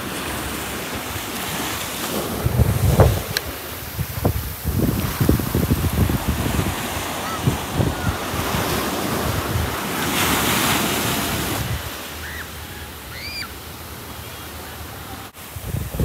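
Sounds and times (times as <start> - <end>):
wind buffeting microphone: 0.0 - 12.0, 15.4 - 16.0
ocean surf washing: 0.0 - 16.0.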